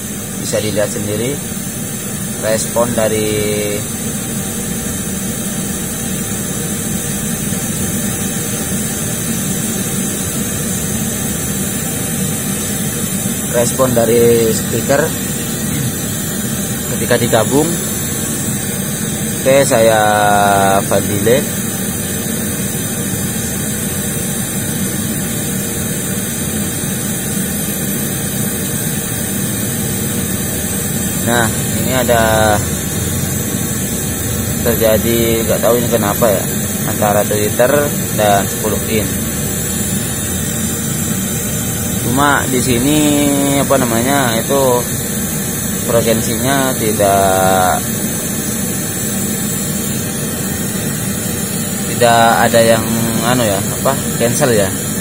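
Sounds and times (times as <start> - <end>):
steady noise hiss from speaker: 0.0 - 4.4, 11.6 - 22.0, 30.8 - 48.5, 51.4 - 55.0.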